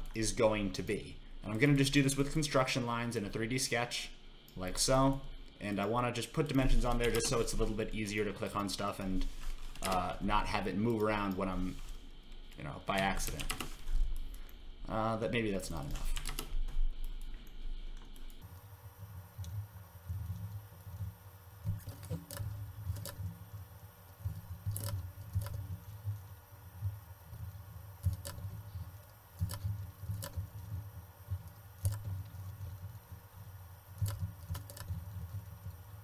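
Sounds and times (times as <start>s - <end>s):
mouse and keyboard clicks: 21.6s - 23.3s, 24.2s - 25.8s, 28.0s - 28.5s, 29.4s - 30.6s, 31.4s - 32.3s, 34.0s - 35.8s.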